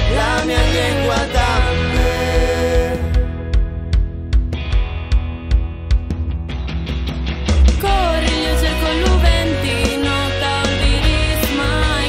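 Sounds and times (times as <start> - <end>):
person singing: 0.0 - 3.4, 7.8 - 12.0
steady drum beat: 0.0 - 6.7
band backing: 0.0 - 12.0.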